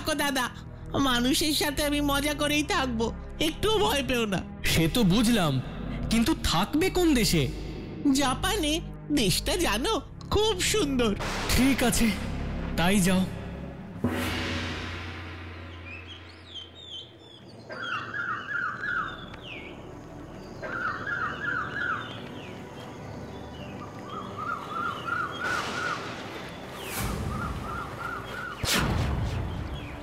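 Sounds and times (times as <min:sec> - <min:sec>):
birds chirping: 0:14.9 - 0:30.0.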